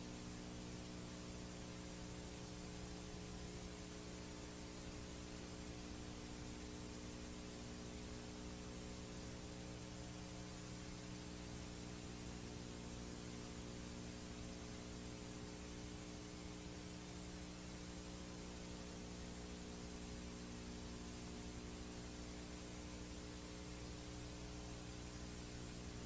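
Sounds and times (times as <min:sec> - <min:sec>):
low steady hum: 0:00.0 - 0:26.0
tape hiss: 0:00.0 - 0:26.0.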